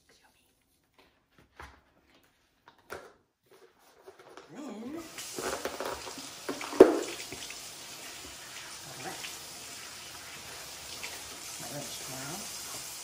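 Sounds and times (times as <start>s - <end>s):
faucet running into sink: 5.0s - 13.0s.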